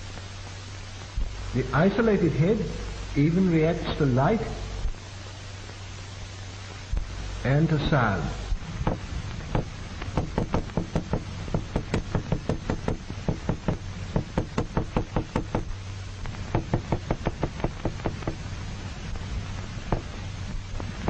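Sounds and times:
hammer knocking on hard surface: 0:08.8 - 0:15.7, 0:16.5 - 0:18.4, 0:19.9 - 0:20.1.

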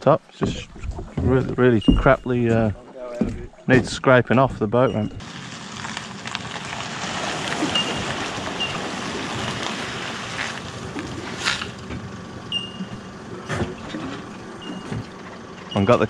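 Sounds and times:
water splashing and churning: 0:05.2 - 0:12.2.

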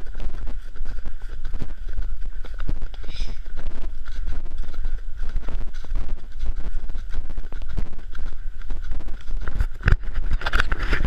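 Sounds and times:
horse hooves on dirt trail: 0:00.0 - 0:11.0
wind rumble on microphone: 0:00.0 - 0:11.0.

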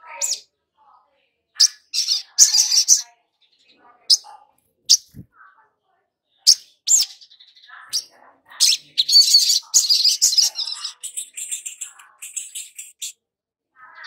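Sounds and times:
bird twittering song: 0:01.5 - 0:05.6, 0:06.3 - 0:13.2
bird chirps: 0:01.6 - 0:05.6, 0:06.4 - 0:13.2.

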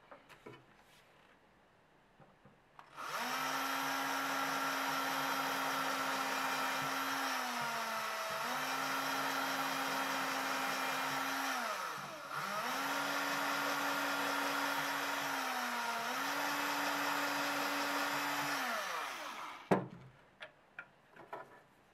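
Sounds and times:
small electric drill whining: 0:02.9 - 0:19.7.

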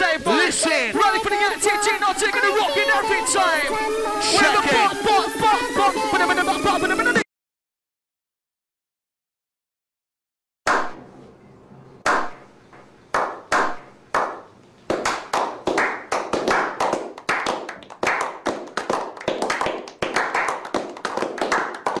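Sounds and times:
men clapping: 0:13.2 - 0:22.0.

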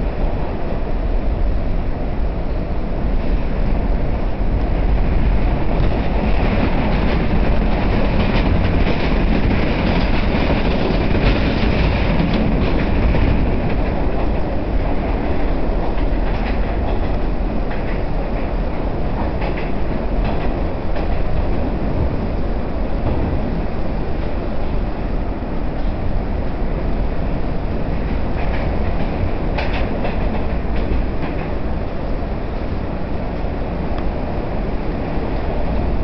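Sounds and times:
subway car wheels rumbling on rail: 0:00.0 - 0:36.0
clatter over rail joints: 0:04.5 - 0:22.2, 0:27.3 - 0:32.2.

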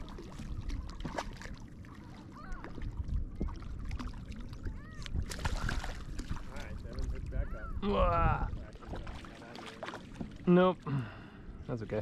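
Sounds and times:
fish splashing in water: 0:00.0 - 0:06.8
wind on microphone: 0:02.4 - 0:09.2.

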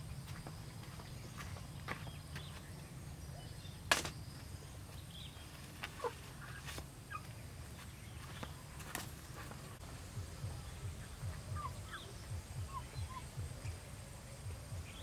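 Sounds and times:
chickens squawking: 0:05.8 - 0:07.6, 0:10.9 - 0:13.6.

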